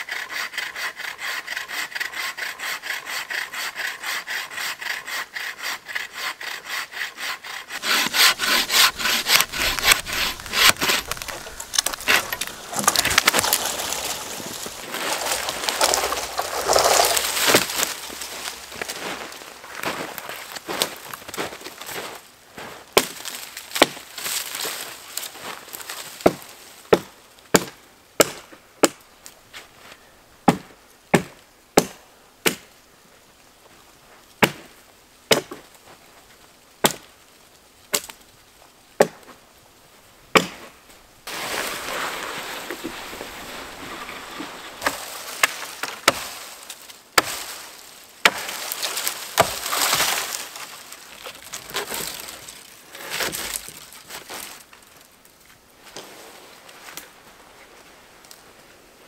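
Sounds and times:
dry wood cracking: 7.5s - 21.9s, 41.3s - 56.1s
brush rustling and crunching: 7.5s - 26.9s, 40.4s - 58.7s.

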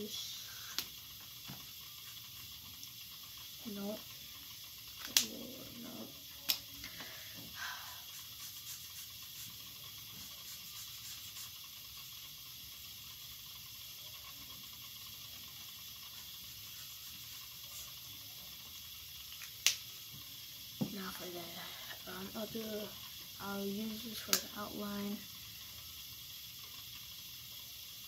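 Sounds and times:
steady hiss: 0.0s - 28.0s
marker scratching on paper: 8.1s - 11.6s, 16.7s - 18.0s.

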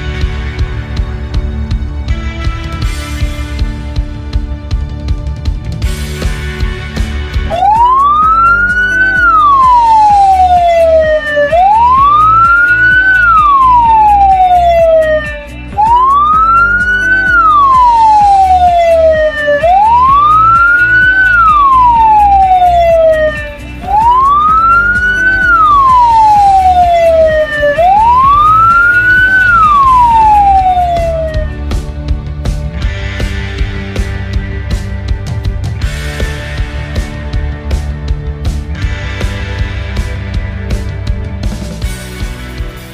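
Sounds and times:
background music: 0.0s - 42.9s
ambulance siren wailing: 7.0s - 32.0s.

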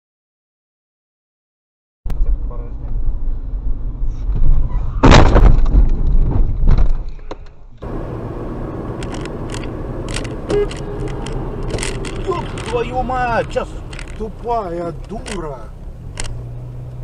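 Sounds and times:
engine and road rumble: 2.1s - 17.0s
road noise of car driving: 2.1s - 17.0s
impact bangs and rattles: 4.3s - 7.3s
loud car crash: 4.8s - 7.0s.

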